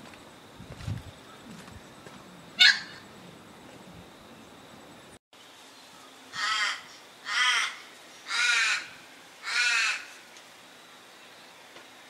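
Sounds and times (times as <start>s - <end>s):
bird giving harsh caws: 6.3s - 10.2s.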